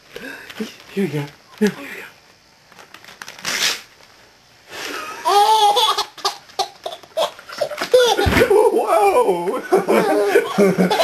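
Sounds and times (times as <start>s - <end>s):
paper tearing: 2.8s - 4.1s
baby laughing: 5.2s - 8.5s, 9.8s - 11.0s.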